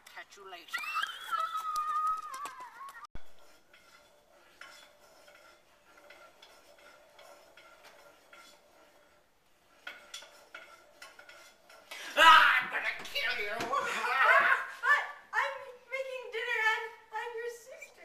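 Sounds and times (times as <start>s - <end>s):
utensil clinking against a pan: 3.3s - 14.0s.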